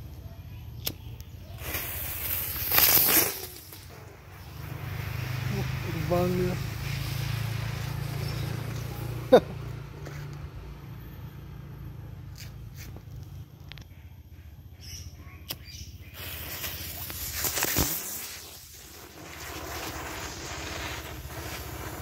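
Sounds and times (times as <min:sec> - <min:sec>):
firework hissing: 0:01.4 - 0:09.6, 0:15.6 - 0:22.0.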